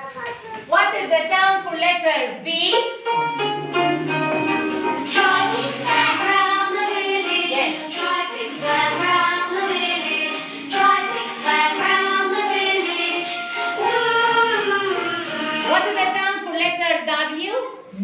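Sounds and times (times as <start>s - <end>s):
children's song from television: 3.0s - 16.8s.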